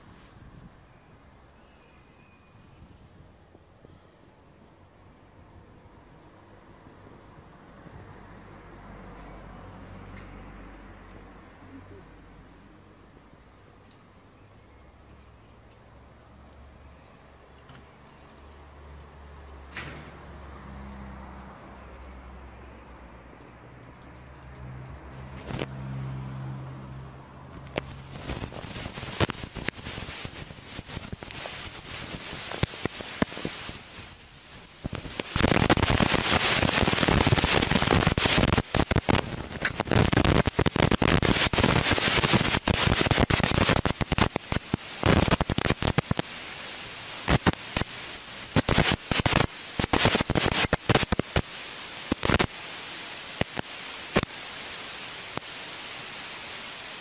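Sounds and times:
crackling static with clicks: 25.2 - 25.8, 27.5 - 57.0.

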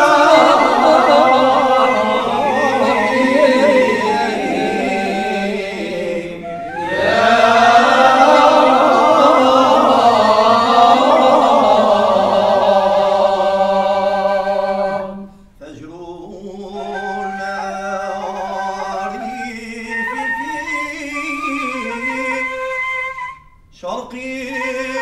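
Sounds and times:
men chanting together: 0.0 - 15.0.

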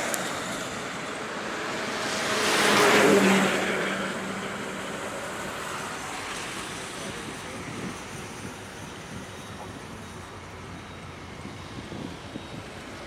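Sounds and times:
vehicle passing close: 0.0 - 6.2
traffic rushing on a bridge: 0.0 - 13.0.

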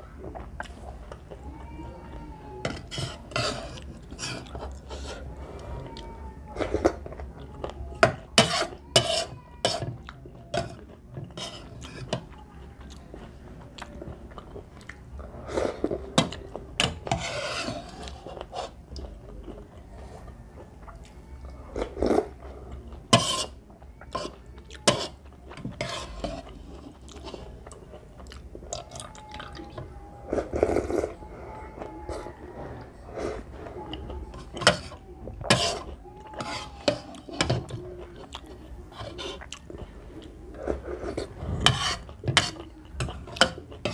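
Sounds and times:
person chewing: 0.2 - 1.4, 24.0 - 31.1, 33.1 - 43.9
spoon scraping a ceramic bowl: 2.6 - 5.2, 16.2 - 18.8, 23.1 - 23.6, 24.9 - 26.5, 34.6 - 37.7, 41.0 - 43.9.

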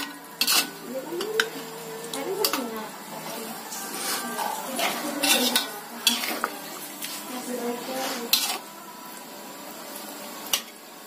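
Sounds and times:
metal ladle scraping in wok: 0.0 - 1.8, 2.4 - 8.7.

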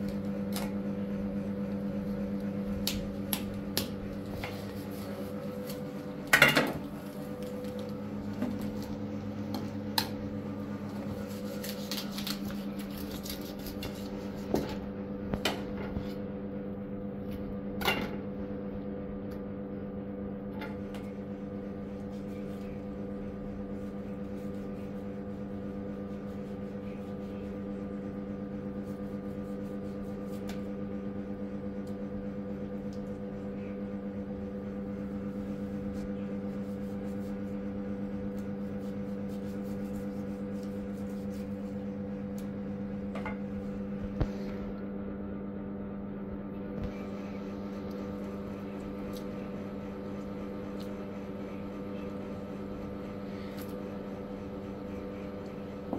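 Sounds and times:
electric motor hum: 0.0 - 15.4.

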